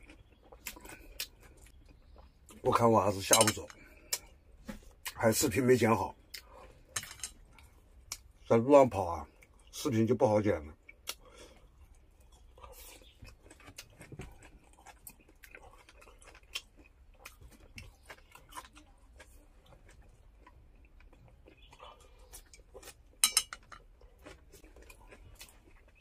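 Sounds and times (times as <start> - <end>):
clicks and clinks of small objects: 3.2 - 3.8, 7.0 - 7.4, 23.2 - 23.9.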